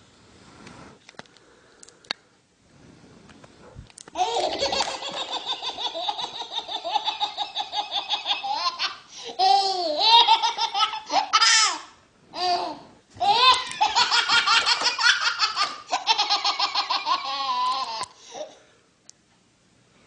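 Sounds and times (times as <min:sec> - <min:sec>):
baby laughing: 0:04.2 - 0:18.6.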